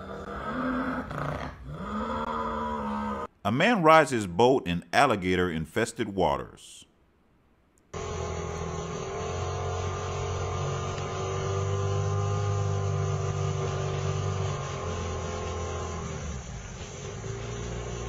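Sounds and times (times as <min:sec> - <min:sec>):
boat engine running: 0:08.0 - 0:18.0.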